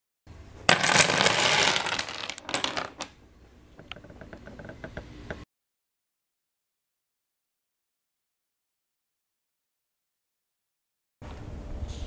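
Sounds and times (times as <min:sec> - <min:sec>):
wooden blocks clattering: 0:00.7 - 0:05.4.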